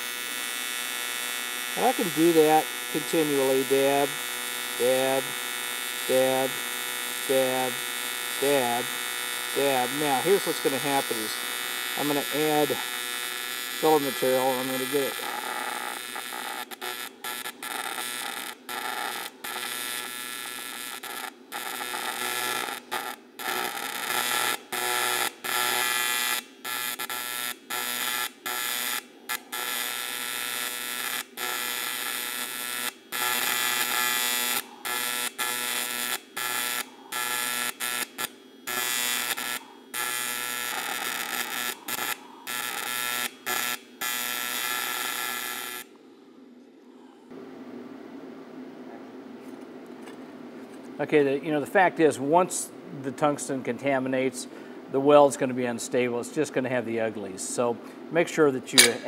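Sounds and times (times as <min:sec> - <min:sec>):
welding arc buzzing: 0:00.0 - 0:45.9, 0:58.8 - 0:59.0.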